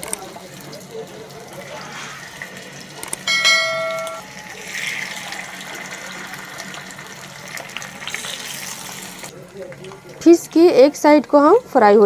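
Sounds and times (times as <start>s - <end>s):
ringing chime: 3.3s - 4.4s
fish sizzling in a frying pan: 4.4s - 9.4s.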